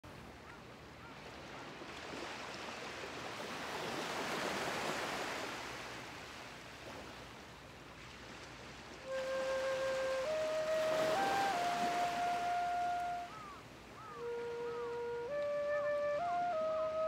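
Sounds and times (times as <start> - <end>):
sea waves washing onto shore: 0.1 - 17.0.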